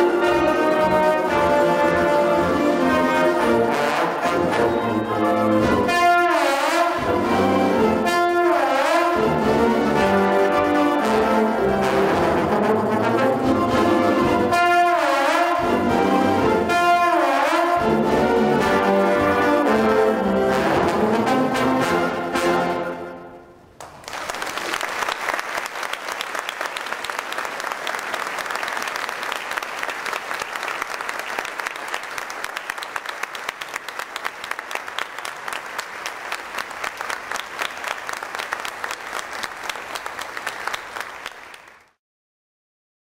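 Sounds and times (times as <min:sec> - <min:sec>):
audience applauding: 0:03.9 - 0:05.6, 0:23.8 - 0:42.0.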